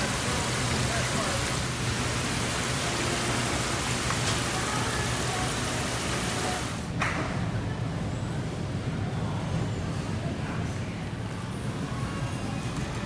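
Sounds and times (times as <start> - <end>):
water spraying and splashing: 0.0 - 6.9.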